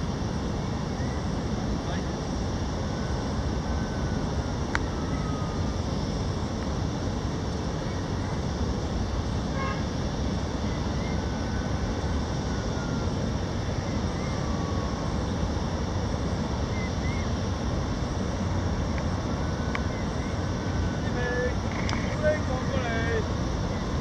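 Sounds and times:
low outdoor roar: 0.0s - 24.0s.

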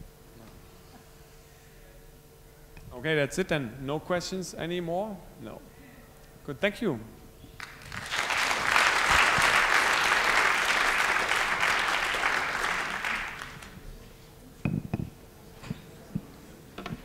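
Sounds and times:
audience applauding: 7.6s - 13.8s.

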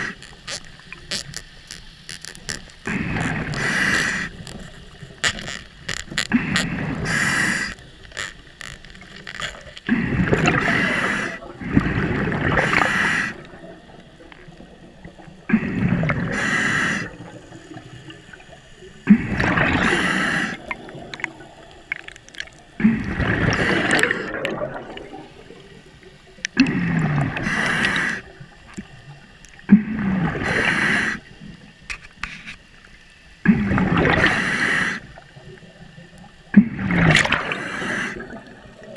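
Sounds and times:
diver breathing through regulator: 2.9s - 4.4s, 6.3s - 7.8s, 9.9s - 13.5s, 15.5s - 17.2s, 19.1s - 20.7s, 22.8s - 24.4s, 26.6s - 28.3s, 30.0s - 31.3s, 34.2s - 35.1s, 36.7s - 38.4s
bubbling rush of breath: 22.8s - 25.9s.

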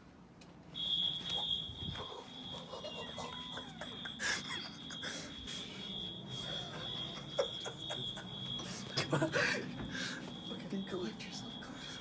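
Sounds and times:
smoke alarm tone: 0.7s - 12.0s.

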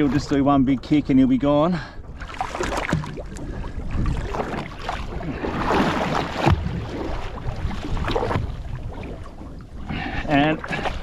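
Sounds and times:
water splashing against boat: 0.0s - 11.0s
fish kicking in water: 2.2s - 9.3s
wind on microphone: 2.6s - 10.8s.

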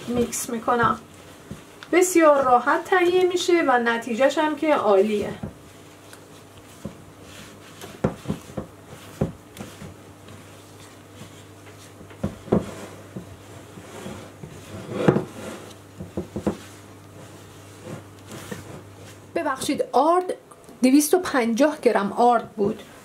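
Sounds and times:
hand squishing dough: 0.0s - 14.8s.

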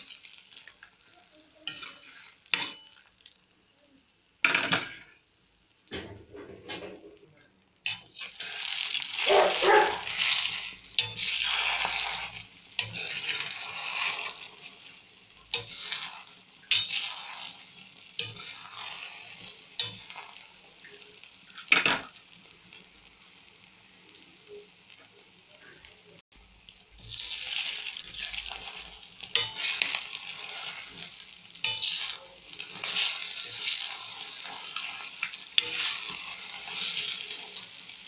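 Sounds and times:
wooden spatula scraping a pan: 0.0s - 3.0s, 7.8s - 21.8s, 27.0s - 38.0s
eggs and onions sizzling in oil: 0.0s - 38.0s.

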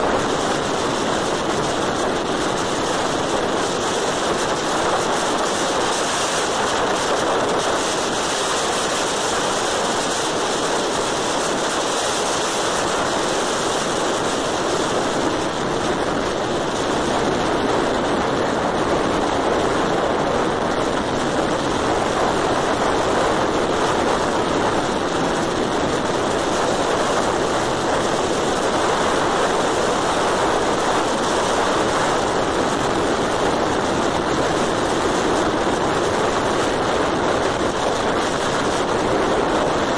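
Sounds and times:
wind over microphone: 0.0s - 39.9s.

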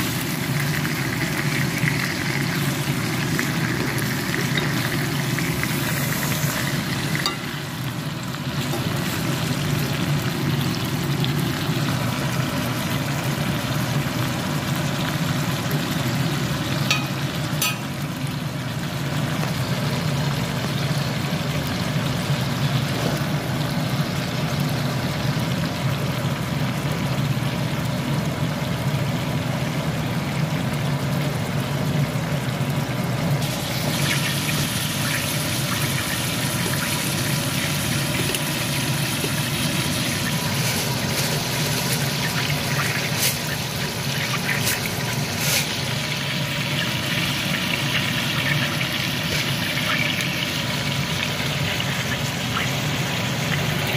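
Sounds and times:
steak sizzling in a pan: 0.0s - 12.1s, 33.4s - 53.3s.

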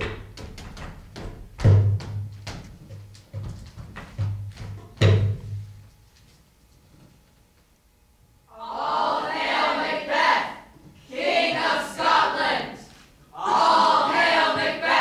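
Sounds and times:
young voices chanting in unison: 8.5s - 15.0s.

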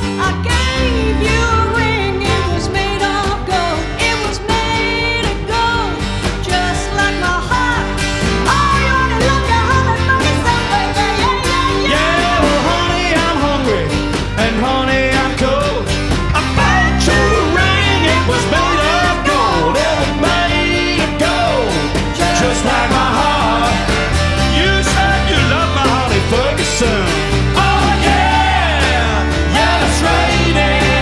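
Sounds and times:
live country-rock band: 0.0s - 31.0s
person singing: 0.0s - 31.0s.

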